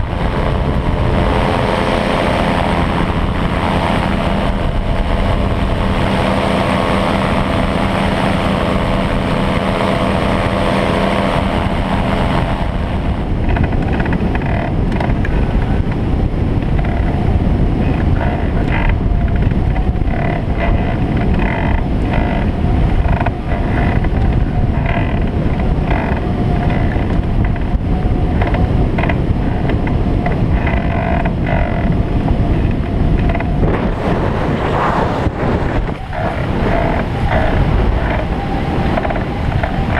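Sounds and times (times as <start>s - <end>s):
microlight engine and propeller running: 0.0s - 39.9s
wind buffeting microphone: 0.0s - 39.9s.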